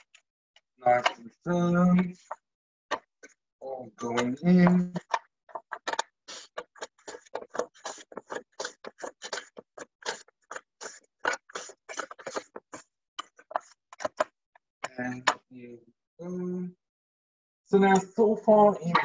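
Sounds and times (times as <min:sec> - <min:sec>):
blade scraping cucumber: 0:04.2 - 0:14.3.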